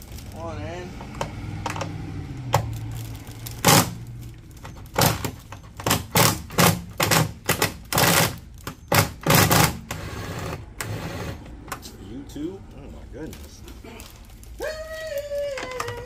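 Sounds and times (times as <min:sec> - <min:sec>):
hard clacks and knocks: 0:04.6 - 0:09.9.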